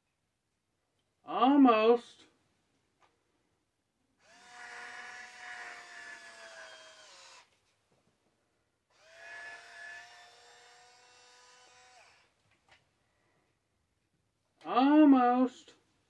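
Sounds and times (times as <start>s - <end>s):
small motor whirring: 4.2s - 7.6s, 8.9s - 12.3s.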